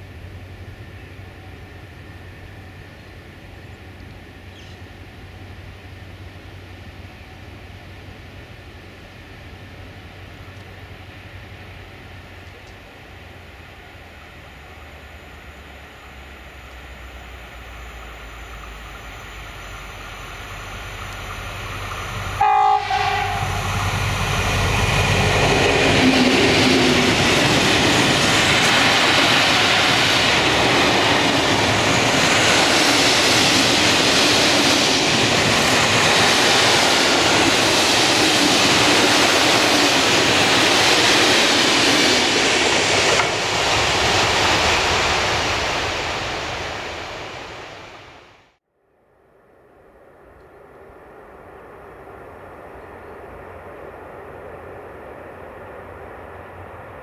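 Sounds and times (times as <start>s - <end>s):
diesel locomotive engine running: 0.0s - 47.7s
locomotive horn blast: 22.3s - 24.0s.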